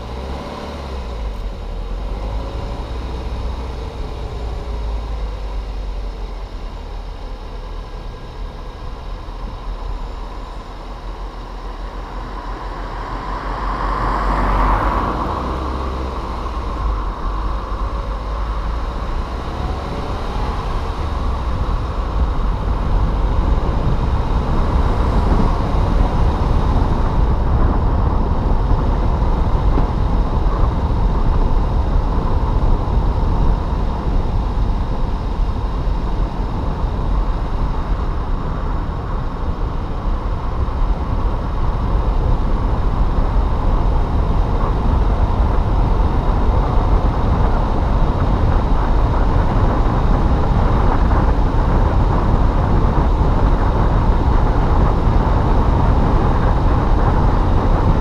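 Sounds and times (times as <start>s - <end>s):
car engine: 0.0s - 58.0s
tyre and road rumble: 0.0s - 58.0s.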